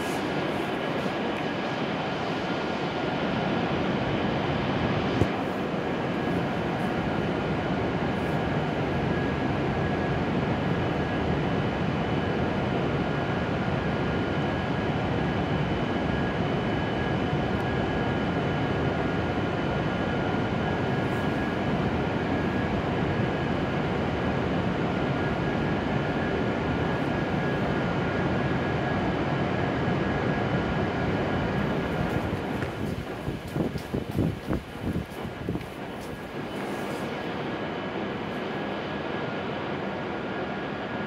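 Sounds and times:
train equipment whirring hum: 0.0 - 41.0.

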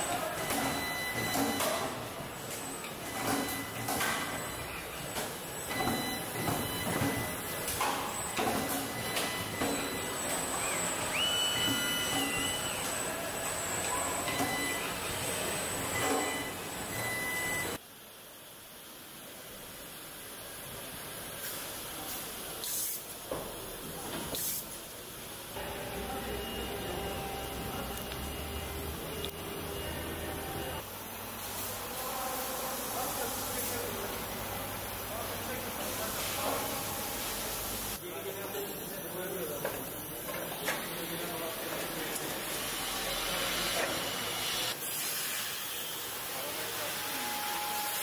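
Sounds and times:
factory hum: 0.0 - 48.0
pneumatic tool air hiss: 22.6 - 23.1.

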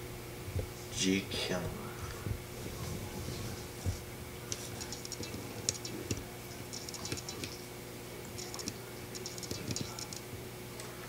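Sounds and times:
aquarium filter humming: 0.0 - 11.0.

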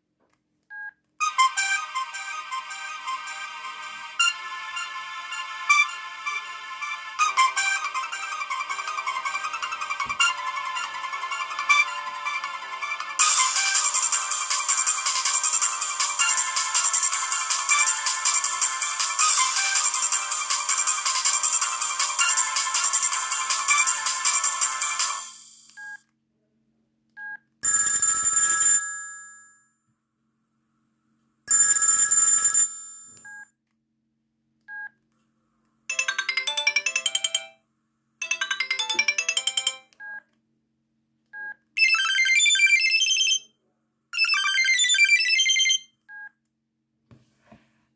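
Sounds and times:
phone ringtone melody: 1.2 - 25.7, 31.5 - 33.2, 35.9 - 37.6, 38.2 - 39.9, 41.8 - 43.4, 44.2 - 45.8
telephone bell ringing: 27.6 - 29.6, 31.5 - 33.3, 35.9 - 37.6, 38.2 - 39.9, 41.8 - 43.4, 44.2 - 45.8.

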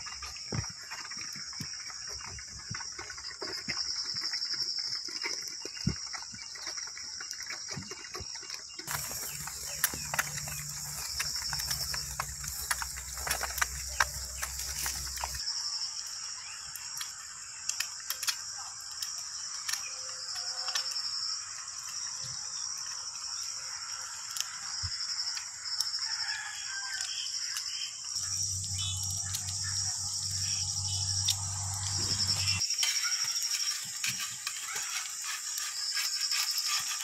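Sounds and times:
insects chirping: 0.0 - 37.0
rooster crowing: 26.0 - 27.3.

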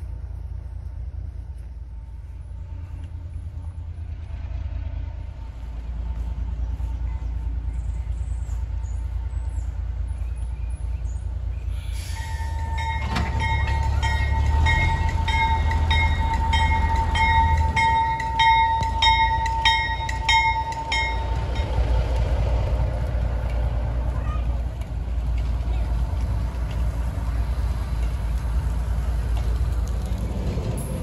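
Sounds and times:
low rumble: 0.0 - 31.0
locomotive bell ringing: 12.0 - 22.1.

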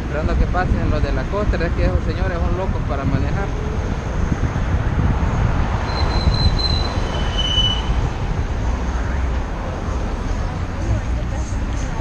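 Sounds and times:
road and wind noise rumble: 0.0 - 12.0
short high-pitched squeals: 5.9 - 8.0.

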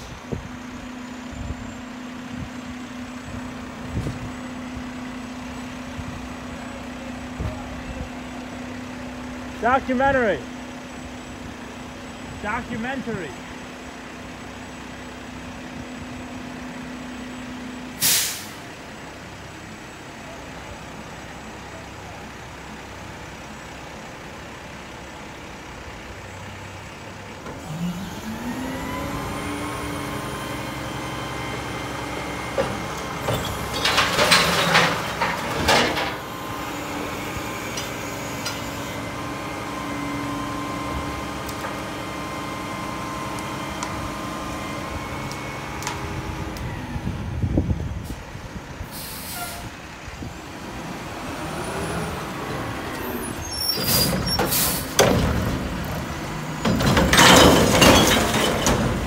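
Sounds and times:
air brake hiss: 18.0 - 18.6, 48.9 - 49.7, 53.9 - 55.0
diesel engine revving: 20.7 - 59.0
loud clattering: 56.6 - 59.0.

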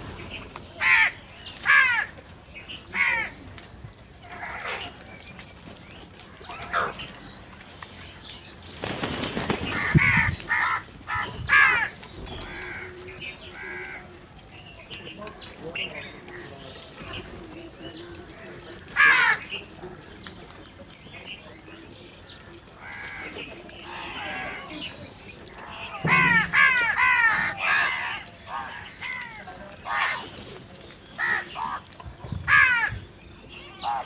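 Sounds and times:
crows cawing: 0.8 - 2.2, 2.9 - 3.4, 4.2 - 5.0, 9.7 - 14.2, 18.9 - 19.5, 22.8 - 24.9, 25.5 - 30.3, 31.2 - 33.0.

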